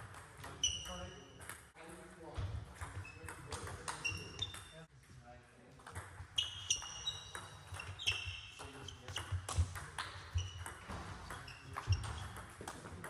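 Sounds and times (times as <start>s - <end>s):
ball bouncing on table: 2.4s - 4.8s, 5.8s - 13.0s.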